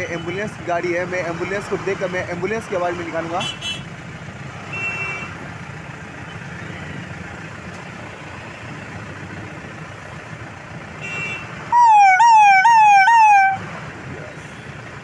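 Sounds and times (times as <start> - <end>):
idling traffic hum: 0.0 - 15.0
man imitating siren with voice: 11.7 - 13.6.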